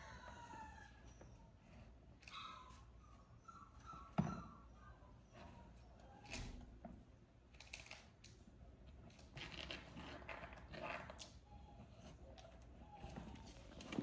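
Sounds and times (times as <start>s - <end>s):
puppies rustling and scuffling: 9.2s - 14.0s.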